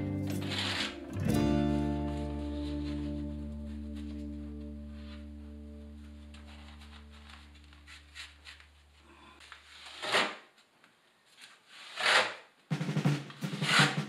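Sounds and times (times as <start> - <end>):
held background music tone: 0.0 - 7.8
scraping on cement board wall: 9.4 - 10.6, 11.4 - 12.5, 13.4 - 14.0
background music with drum beat: 12.7 - 14.0.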